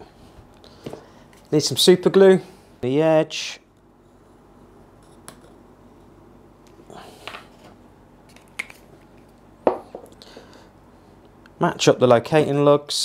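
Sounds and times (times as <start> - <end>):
bottle set down on wood: 9.6 - 10.1.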